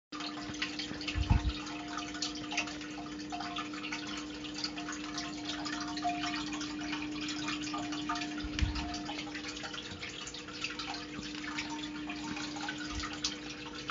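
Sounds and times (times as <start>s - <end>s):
low underwater hum: 0.2s - 13.9s
underwater clicks and bubbling: 0.2s - 13.9s
dull low thump: 1.1s - 1.6s, 8.5s - 9.0s.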